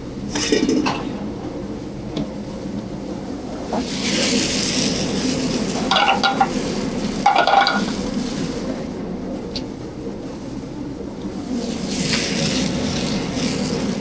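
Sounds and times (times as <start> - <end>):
steady low hum: 0.0 - 14.0
food sizzling in pans: 5.0 - 8.0
metal clatters of pans: 5.9 - 6.5, 7.3 - 7.9.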